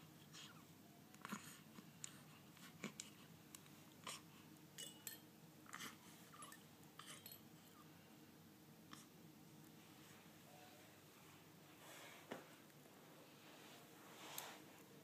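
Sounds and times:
faint rustles and clicks: 9.8s - 15.0s.

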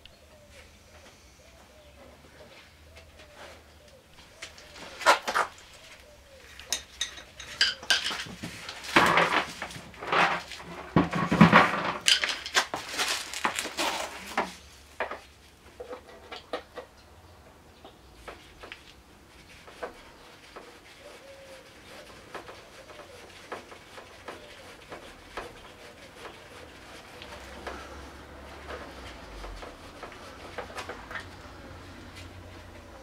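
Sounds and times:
metal tools clinking: 6.6s - 8.3s.

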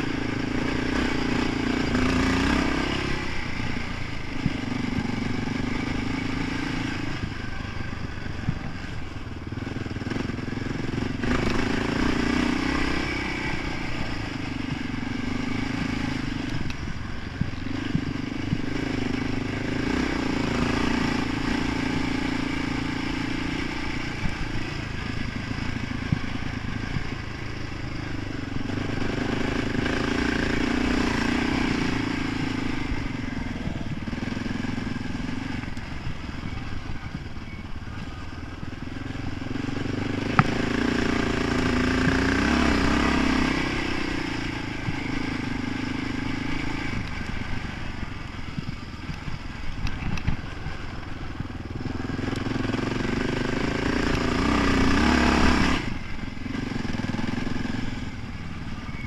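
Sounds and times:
quad bike engine revving: 0.0s - 59.0s
sharp knocks from bumpy track: 39.7s - 41.1s.

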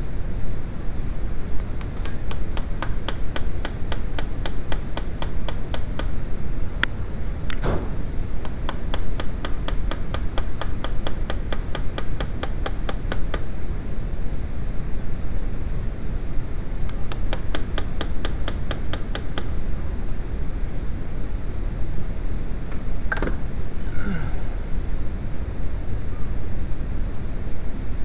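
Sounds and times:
low background rumble: 0.0s - 28.0s
sharp tool clicks: 1.8s - 6.2s, 8.4s - 13.5s, 16.8s - 19.6s.

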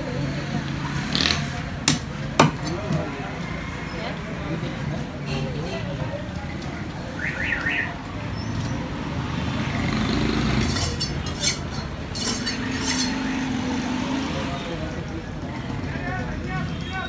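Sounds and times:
market noise: 0.0s - 17.0s
traffic noise: 0.0s - 17.0s
knife scraping on sharpening stone: 10.7s - 13.2s.

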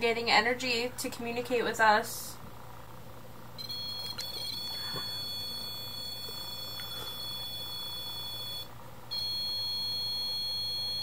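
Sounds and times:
high-pitched electronic alarm tone: 3.6s - 11.0s.

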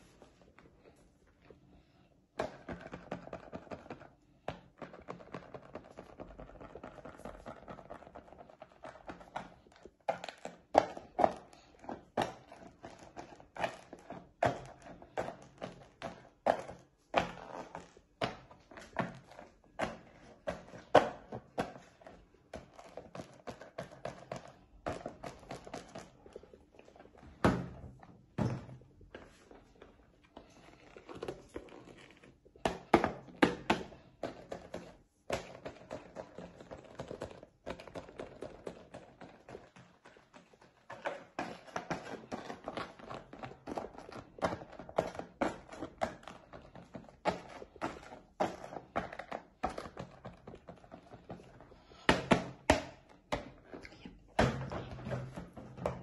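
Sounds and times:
rubber puppets tapping and knocking: 2.4s - 29.7s, 31.0s - 56.0s.

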